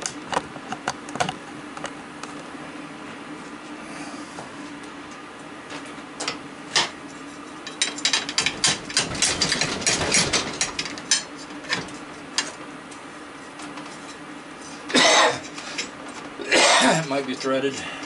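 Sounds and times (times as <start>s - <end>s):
person coughing: 14.9s - 15.4s, 16.4s - 17.1s.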